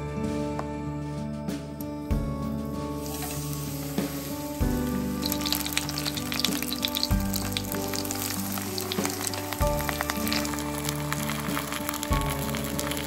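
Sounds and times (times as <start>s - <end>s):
battered leaves sizzling in oil: 2.6s - 13.0s.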